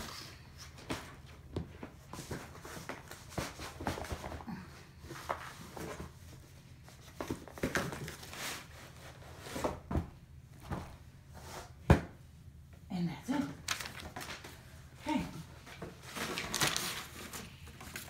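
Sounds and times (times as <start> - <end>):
plastic crinkling and rustling: 13.6 - 14.6, 15.8 - 18.0.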